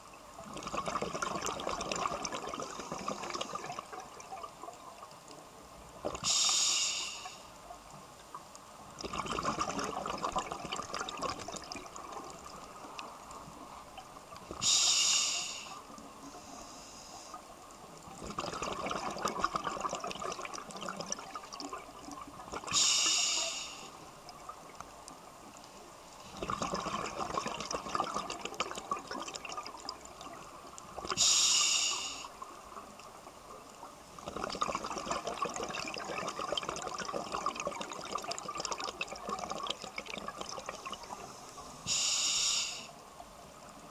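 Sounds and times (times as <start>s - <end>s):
gurgling exhaled bubbles: 0.4s - 4.5s, 9.0s - 13.2s, 18.1s - 23.6s, 26.3s - 31.4s, 34.2s - 41.3s
regulator inhale hiss: 6.2s - 7.6s, 14.6s - 17.6s, 22.7s - 24.1s, 31.1s - 32.4s, 41.1s - 43.0s.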